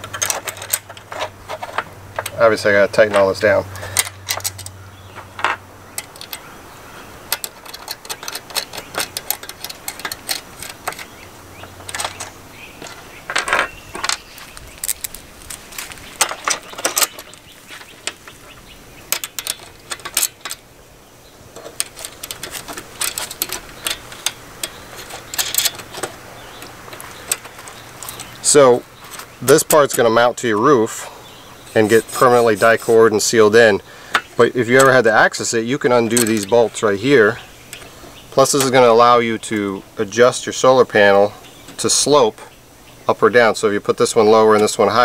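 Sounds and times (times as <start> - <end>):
small metal clicks and clinks: 3.8 - 6.5, 7.3 - 11.2, 21.6 - 30.0.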